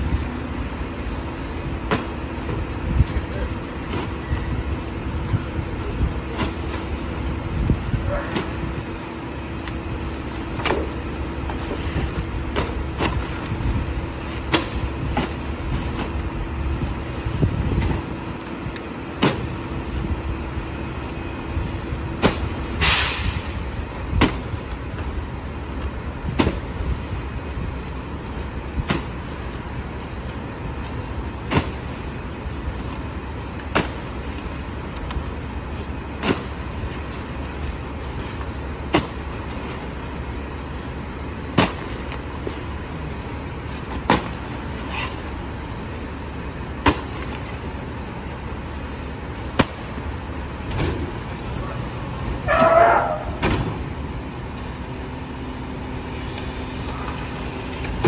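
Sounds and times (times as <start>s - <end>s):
garbage truck idling: 0.0s - 58.0s
short hiss: 22.8s - 23.5s.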